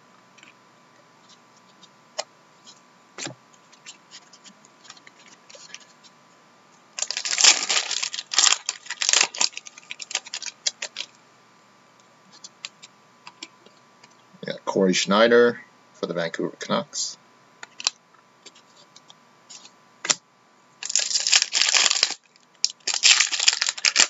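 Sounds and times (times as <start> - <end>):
foil wrapper crinkling and tearing: 7.0 - 11.1, 17.7 - 18.0, 20.8 - 24.0.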